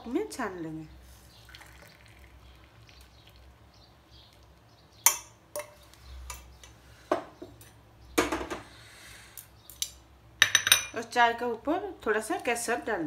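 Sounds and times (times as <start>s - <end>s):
tea trickling through strainer: 1.2s - 4.7s.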